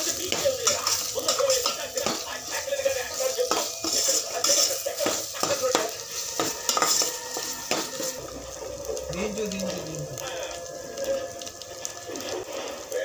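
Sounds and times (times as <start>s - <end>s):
frying oil sizzling: 0.0s - 13.0s
metal spoon scraping a metal pot: 3.5s - 8.2s.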